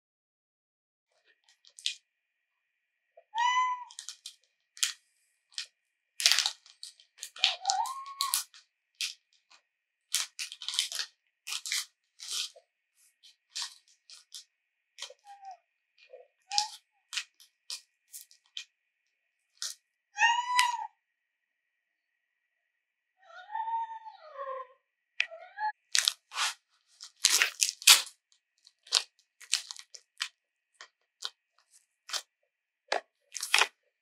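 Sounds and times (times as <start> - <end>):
cat chirping calls: 3.2 - 4.0, 7.3 - 8.5, 20.2 - 21.0, 23.2 - 25.8
cat meowing: 3.2 - 4.0, 7.4 - 8.5, 20.2 - 21.0, 23.2 - 25.7
sharp crackles and clicks: 25.8 - 28.1, 33.4 - 33.7.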